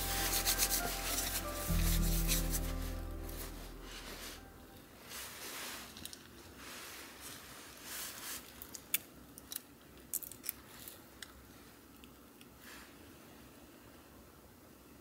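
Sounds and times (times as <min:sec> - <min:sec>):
jacket rustling: 0:00.0 - 0:08.5.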